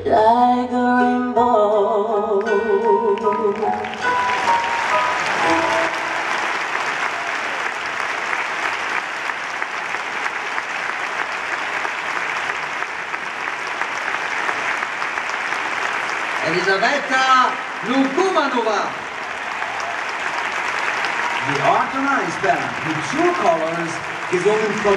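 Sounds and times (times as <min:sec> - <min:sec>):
music: 0:00.0 - 0:07.2
audience applauding: 0:03.2 - 0:24.9.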